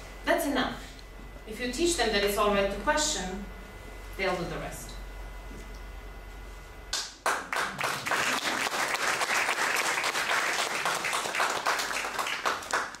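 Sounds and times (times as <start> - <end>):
audience applause: 7.2 - 13.0.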